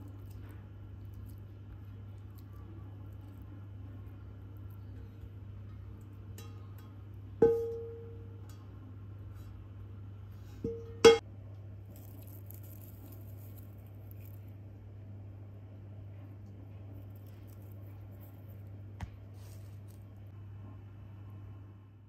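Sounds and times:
cookware clinking against ceramic bowl: 6.3s - 8.7s, 10.6s - 11.2s.

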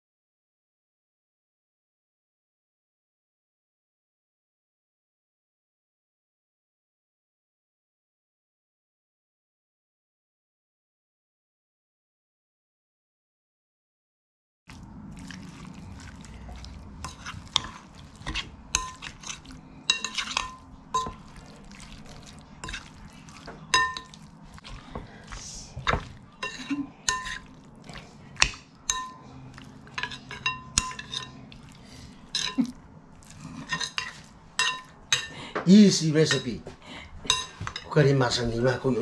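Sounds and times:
spoon clinking against glass bowl: 17.0s - 21.4s, 23.6s - 24.3s, 25.8s - 27.5s, 28.4s - 31.4s, 32.2s - 32.7s, 33.6s - 35.4s, 37.3s - 38.0s.

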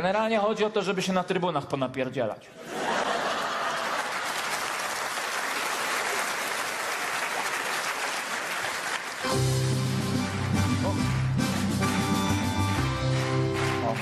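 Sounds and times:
audience applauding: 2.8s - 14.0s.

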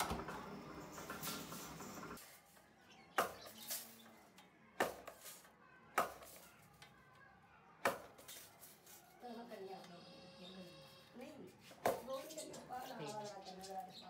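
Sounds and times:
workshop machinery din: 0.0s - 2.5s.

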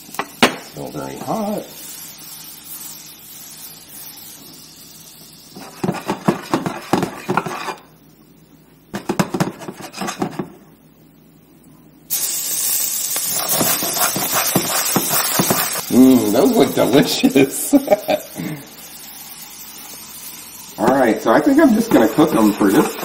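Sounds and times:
frying sizzle: 0.0s - 7.8s, 12.1s - 23.0s
pan and utensils clattering: 5.6s - 7.8s, 13.2s - 17.1s, 20.8s - 23.0s.

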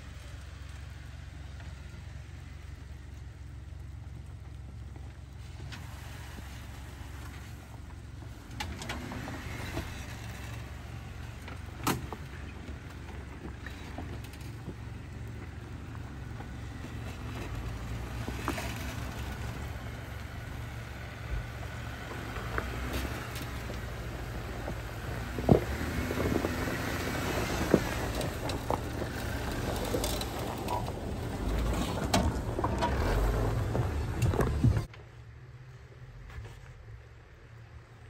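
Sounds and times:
low engine rumble: 0.0s - 38.0s
tyres grinding over loose rock: 8.8s - 34.9s.

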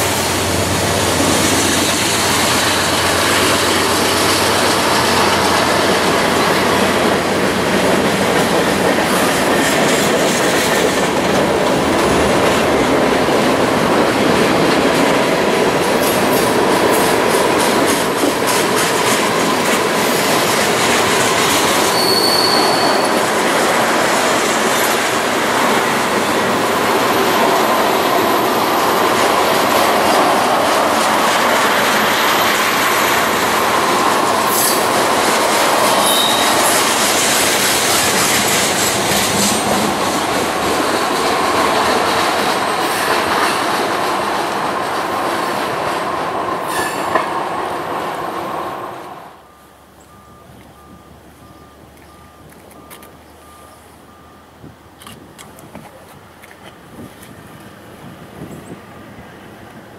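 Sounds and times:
train wheels rumbling on rail: 0.0s - 59.9s
wheel flanges squealing: 19.3s - 25.1s, 31.9s - 41.3s.

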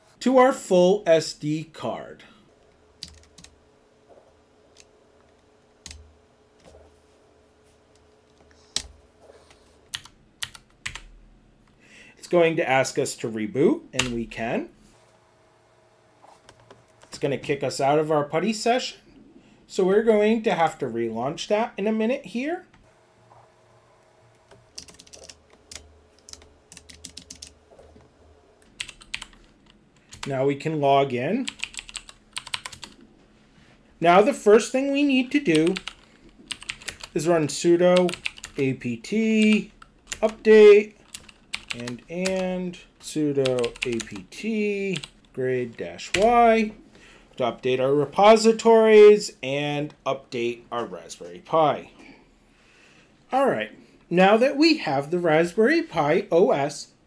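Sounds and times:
faint steady hum: 0.0s - 57.0s
keyboard typing clicks: 24.7s - 27.5s
keyboard keys clicking: 24.7s - 27.6s, 28.8s - 30.3s, 31.5s - 33.0s, 35.6s - 37.1s, 41.0s - 42.4s, 43.5s - 44.2s.

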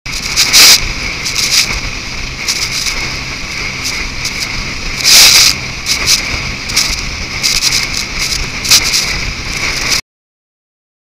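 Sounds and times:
boat engine hum: 0.1s - 10.0s
wind and spray rushing: 0.1s - 10.0s.

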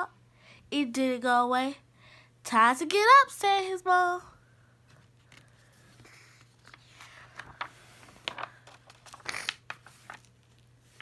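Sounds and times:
paper page turning: 4.9s - 11.0s.

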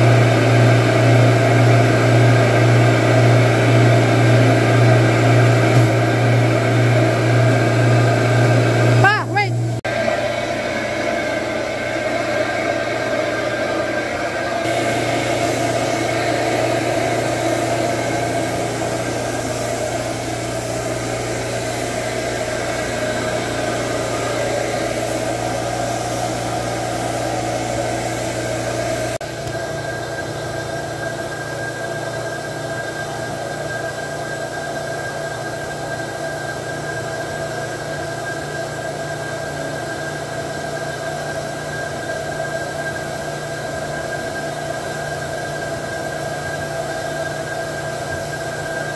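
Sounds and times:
carpet extractor droning: 0.0s - 34.8s.

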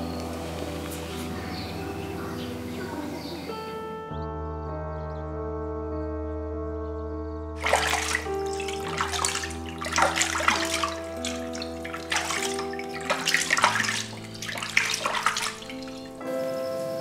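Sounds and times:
soft background music: 0.0s - 17.0s
water sloshing and splashing: 7.6s - 16.3s.

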